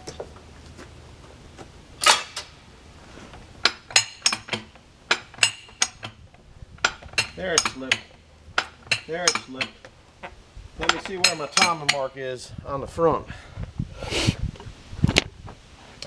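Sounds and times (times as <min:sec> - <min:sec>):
metal clank: 0:02.0 - 0:02.6, 0:03.6 - 0:06.2, 0:06.8 - 0:09.8, 0:10.8 - 0:12.1
farm jack ratcheting: 0:03.6 - 0:09.8, 0:10.8 - 0:12.1.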